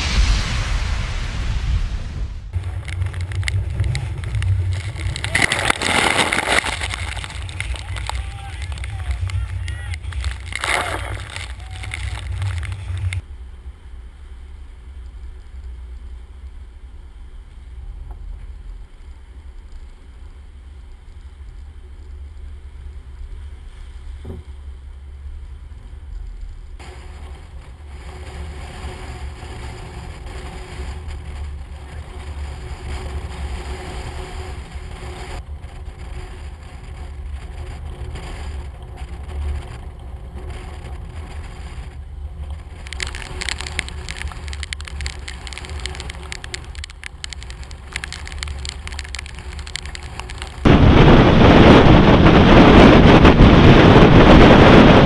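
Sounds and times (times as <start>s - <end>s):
waves washing ashore: 0.0s - 13.2s, 42.5s - 55.0s
wind buffeting microphone: 0.0s - 13.2s, 26.8s - 55.0s.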